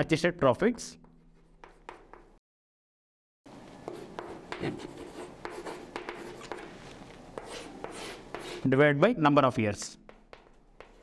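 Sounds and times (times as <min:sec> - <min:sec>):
chalk writing on blackboard: 0:01.3 - 0:02.4, 0:03.9 - 0:06.8, 0:07.4 - 0:08.7, 0:10.1 - 0:11.0.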